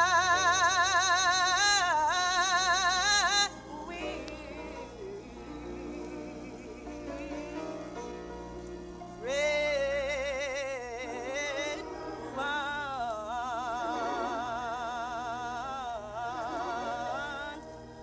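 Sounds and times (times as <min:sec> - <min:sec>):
woman singing gospel with vibrato: 0:00.0 - 0:07.9.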